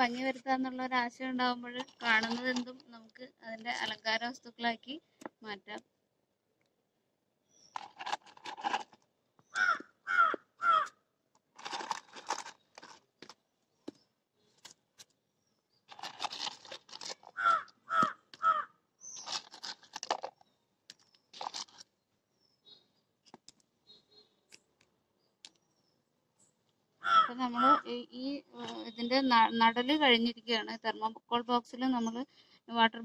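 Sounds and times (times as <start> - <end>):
crow cawing: 9.5 - 11.0, 17.4 - 18.8, 27.0 - 27.7
crow rasping calls: 9.5 - 11.0, 17.3 - 18.8, 27.0 - 27.9.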